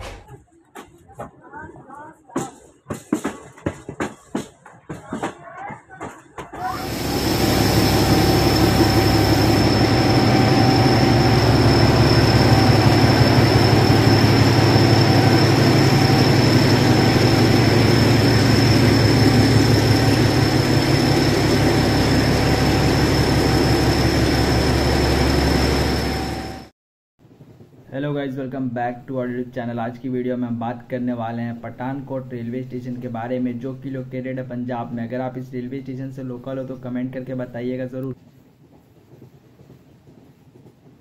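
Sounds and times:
locomotive engine rumbling: 6.6 - 26.7
high-pitched whine: 6.7 - 26.7.

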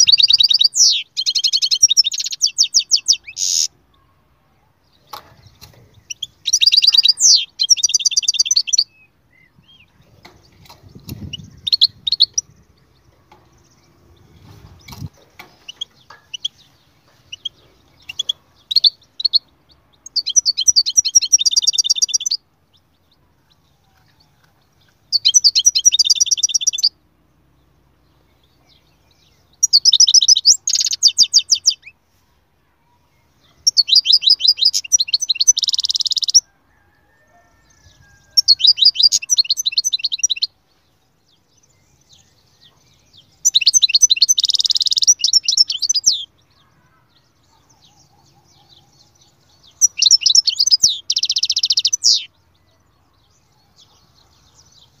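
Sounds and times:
goldfinch singing: 0.0 - 3.8, 5.0 - 22.4, 24.8 - 27.0, 28.4 - 31.9, 33.6 - 36.4, 37.7 - 40.6, 41.6 - 52.6.

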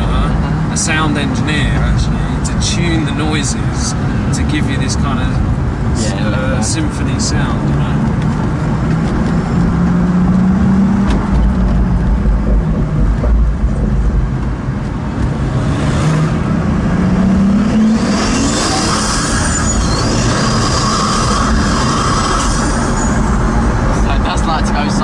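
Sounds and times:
car engine drone from inside cabin: 0.0 - 25.0.

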